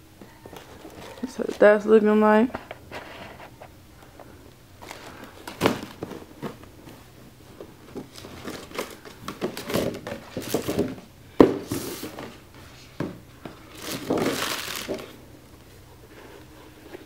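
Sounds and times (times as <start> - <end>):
tissue paper rustling: 13.7 - 15.1.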